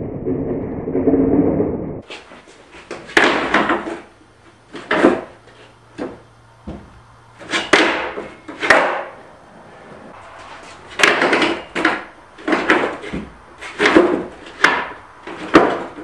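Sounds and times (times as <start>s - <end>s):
skateboard wheels scraping: 2.0s - 6.2s, 7.4s - 16.0s
skateboard knocking on wood and concrete: 2.8s - 4.1s, 4.7s - 9.2s, 11.0s - 16.0s.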